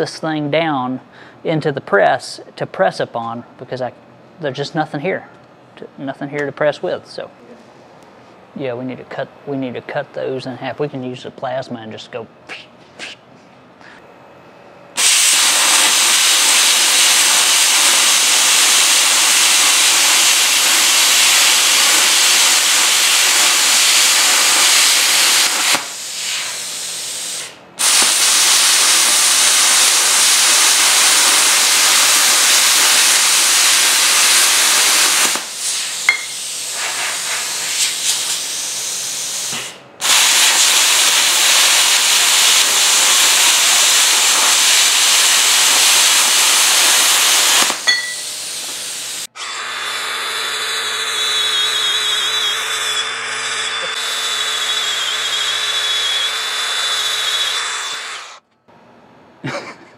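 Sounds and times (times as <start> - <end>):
plasma cutter arc hissing: 15.0 - 49.3.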